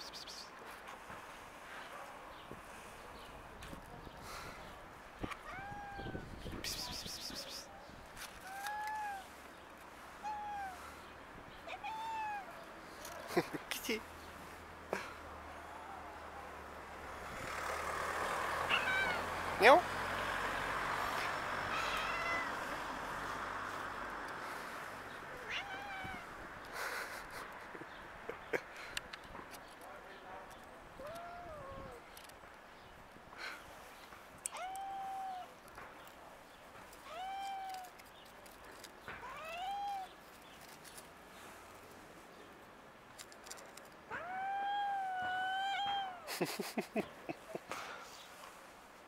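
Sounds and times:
cat meowing: 5.3s - 6.3s, 8.4s - 9.3s, 10.2s - 10.8s, 11.7s - 12.6s, 18.7s - 19.3s, 21.7s - 22.6s, 25.4s - 26.4s, 34.5s - 35.5s, 44.1s - 46.3s.

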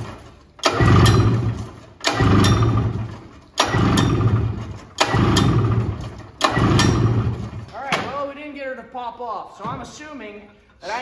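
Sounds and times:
engine cranking with rope pull-starter: 0.0s - 7.7s.

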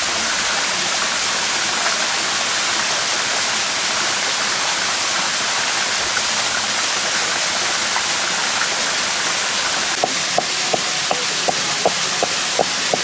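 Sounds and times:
stream rushing: 0.0s - 13.0s
pestle pounding in stone mortar: 10.0s - 13.0s.

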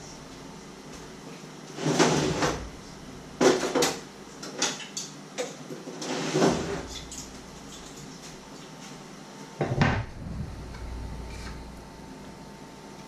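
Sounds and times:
cupboards and drawers opening and shutting: 1.8s - 2.7s, 6.0s - 7.0s, 9.6s - 11.7s.

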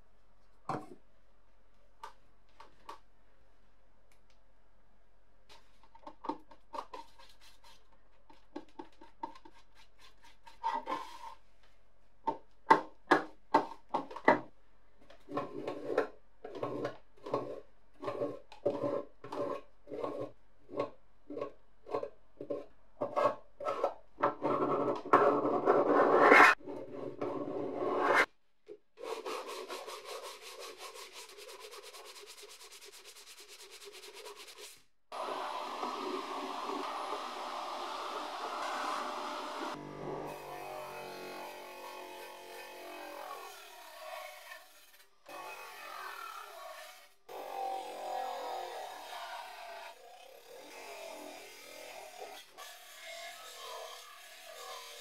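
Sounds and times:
sanding on metal: 29.0s - 34.8s.

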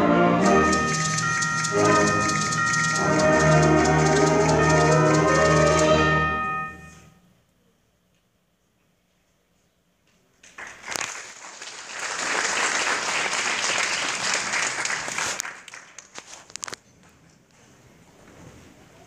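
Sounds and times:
audience applause: 0.4s - 6.1s, 10.5s - 16.2s.

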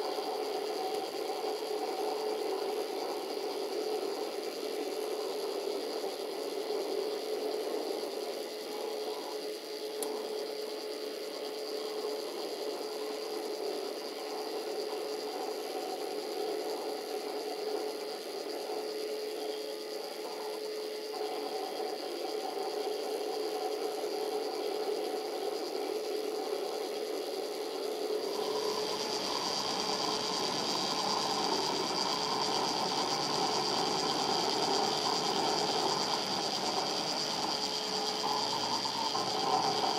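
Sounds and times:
printer mechanical whirr: 24.5s - 39.9s
printer motors humming: 24.5s - 39.9s.

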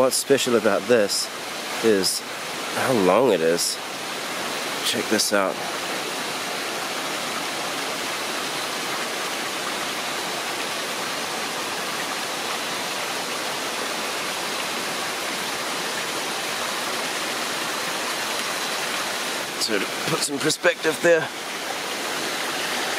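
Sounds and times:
forest stream rushing: 0.0s - 22.9s.

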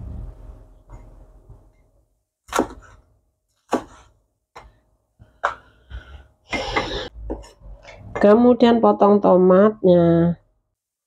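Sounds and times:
knife chopping on cutting board: 2.5s - 3.0s, 3.7s - 4.7s.

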